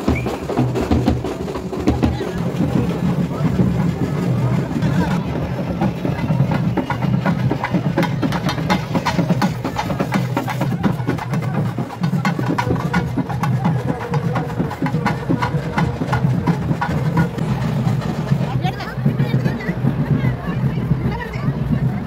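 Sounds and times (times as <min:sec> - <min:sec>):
fast procession drumming: 0:00.0 - 0:22.0.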